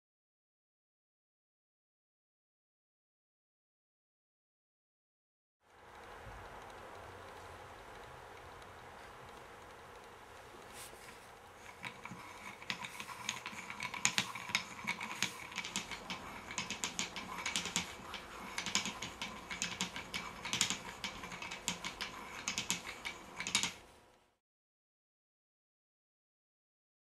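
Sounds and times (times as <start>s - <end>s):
wooden cam clicking and clacking: 11.6s - 23.8s.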